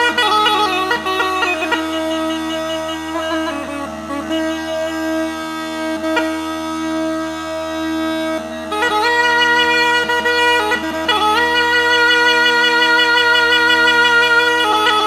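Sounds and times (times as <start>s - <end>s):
steady drone: 0.0s - 15.0s
wind instrument folk melody: 0.0s - 15.0s.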